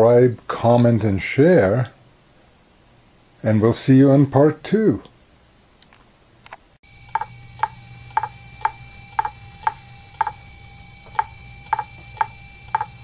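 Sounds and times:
faint steady whine: 5.2s - 13.0s
hard drive clicking: 7.0s - 13.0s.

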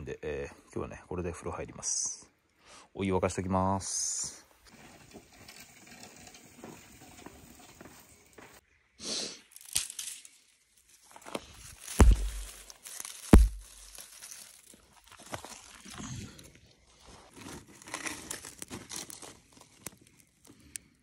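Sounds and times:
twigs snapping and rustling: 9.4s - 21.0s
sharp cracks with thud: 11.9s - 14.0s.

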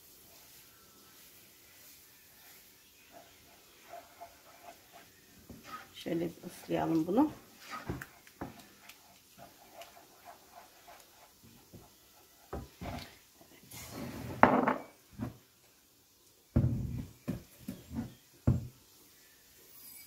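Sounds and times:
spoon stirring in metal pot: 2.4s - 13.2s.

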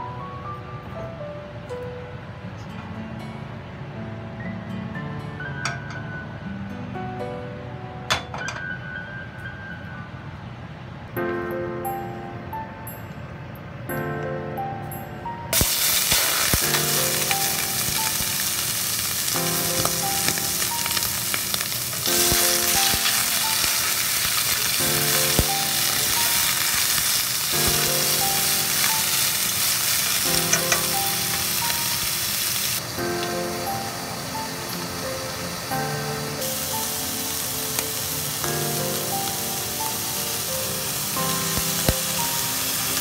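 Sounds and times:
soft background music: 0.0s - 43.0s
squid sizzling in hot oil: 15.6s - 43.0s
chopsticks tapping a pan: 30.1s - 31.5s.

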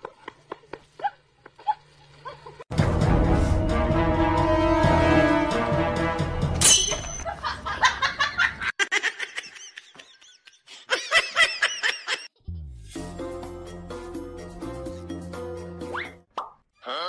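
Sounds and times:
background music: 2.7s - 7.2s, 12.6s - 16.2s
high-pitched giggling laughter: 7.2s - 12.3s.

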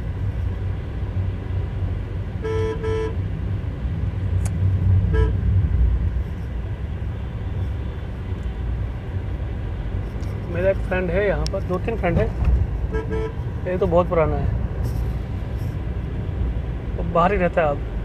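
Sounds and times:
car rumbling on road: 0.0s - 18.0s
vehicle horn beeping: 2.4s - 3.2s, 5.0s - 5.5s, 12.9s - 13.4s.

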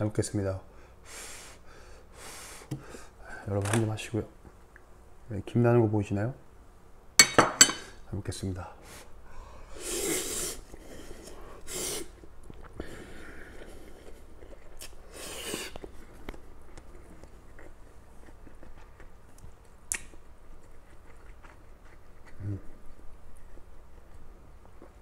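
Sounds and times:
loud noodle slurping: 9.8s - 12.2s, 12.8s - 15.9s
quiet chewing: 10.7s - 25.0s.

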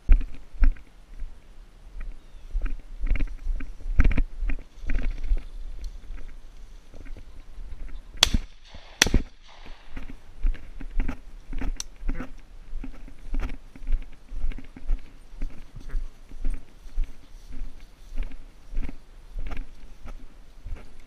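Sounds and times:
footsteps through dry grass: 0.0s - 21.0s
shotgun shots: 8.2s - 10.1s.

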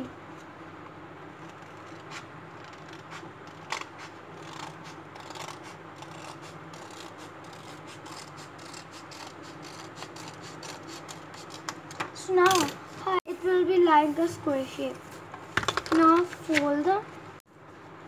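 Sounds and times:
faint steady hum: 0.0s - 18.0s
scissors snipping paper: 1.4s - 12.7s.

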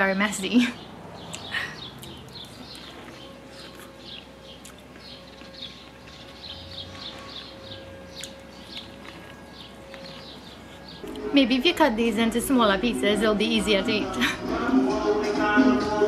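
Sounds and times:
small birds chirping: 0.0s - 11.3s.

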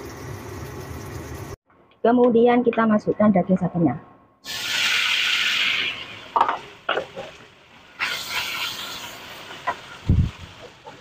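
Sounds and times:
meat sizzling in a wok: 0.0s - 1.6s, 4.4s - 11.0s.

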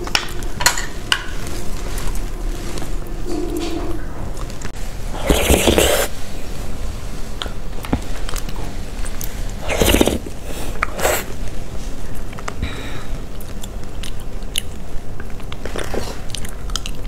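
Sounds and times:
wet slurps of eating: 5.2s - 6.1s, 9.6s - 11.3s.

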